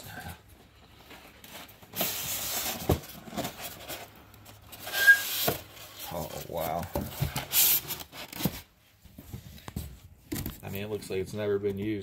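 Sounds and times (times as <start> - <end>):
short squeak: 4.9 - 5.4.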